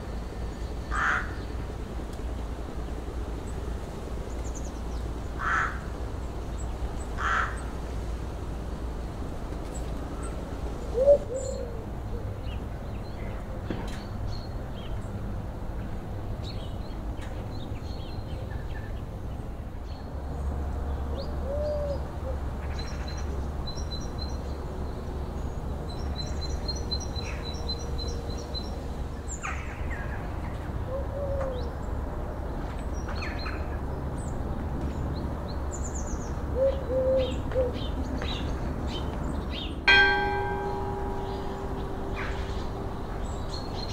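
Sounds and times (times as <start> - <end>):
dove cooing: 10.9 - 12.3, 21.4 - 22.4, 30.8 - 31.6, 36.6 - 37.9.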